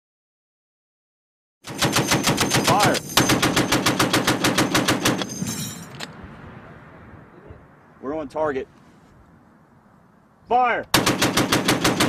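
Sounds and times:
heavy machine gun bursts: 1.6 - 5.4, 10.9 - 12.0
gunfire echo: 1.6 - 6.6, 10.9 - 12.0.

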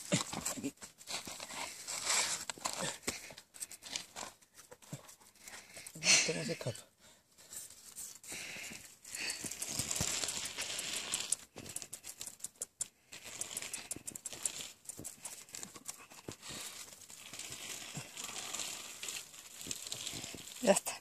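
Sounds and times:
rustling and scratching: 0.0 - 21.0
puppies scrabbling on rock: 9.2 - 18.1.

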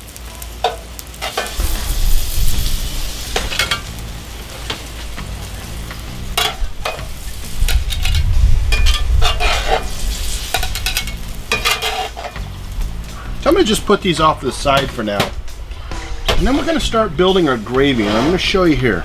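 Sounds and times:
patties sizzling in a pan: 0.0 - 18.9
low rumble: 1.6 - 11.6, 12.4 - 17.8
metal spatula scraping a pan: 6.3 - 12.5, 15.9 - 18.8.

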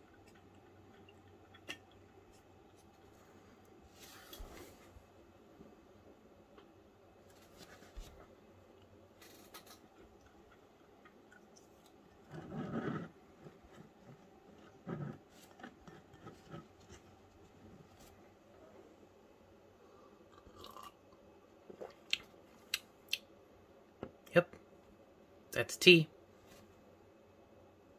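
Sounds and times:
soft rustles and light clicks: 1.6 - 5.8, 6.5 - 12.8.

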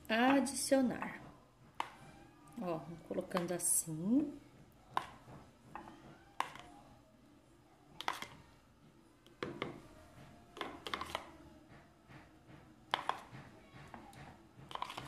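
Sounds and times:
spoon scraping a bowl: 10.6 - 11.3, 14.7 - 15.0.

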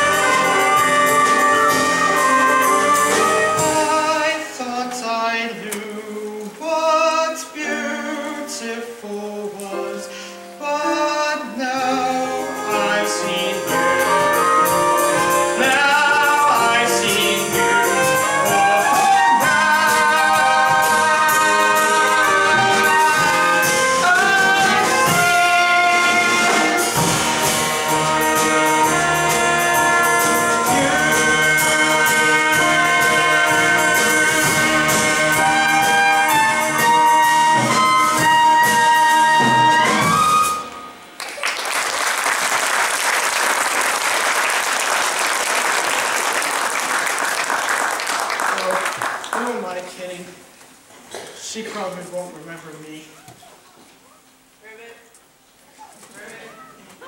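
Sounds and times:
instrumental music: 0.0 - 4.6, 7.4 - 41.2.

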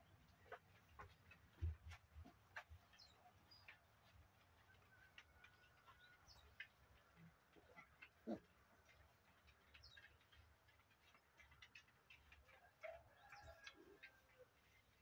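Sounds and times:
piglets lapping and chewing: 0.1 - 15.0
piglet grunt: 8.2 - 8.5.

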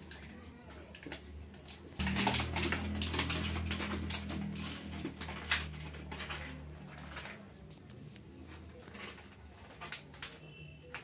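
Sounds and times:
dog chewing paper: 2.0 - 7.5.

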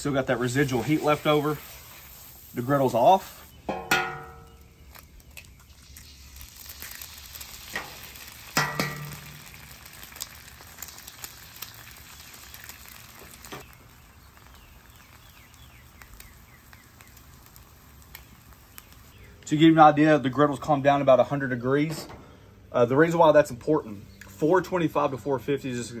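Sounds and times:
eggs sizzling on a griddle: 0.0 - 19.5
eggshells cracking: 4.2 - 19.2.

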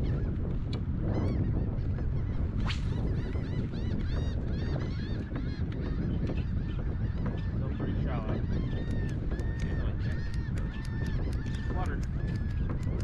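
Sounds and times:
wind rumble on microphone: 0.0 - 13.0
birds honking: 3.0 - 13.0.

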